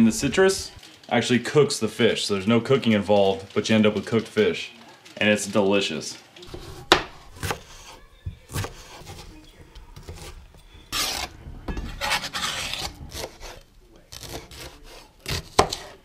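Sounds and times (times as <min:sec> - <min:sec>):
knife chopping on plastic board: 0:06.5 - 0:09.3, 0:11.0 - 0:16.0
knife scraping on board: 0:06.5 - 0:09.3, 0:10.0 - 0:16.0.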